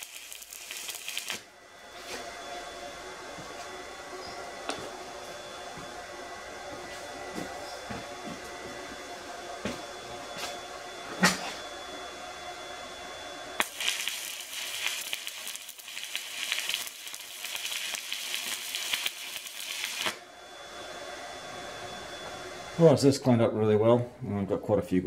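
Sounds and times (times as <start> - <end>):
welding arc crackling: 0.0 - 1.5, 13.6 - 20.2.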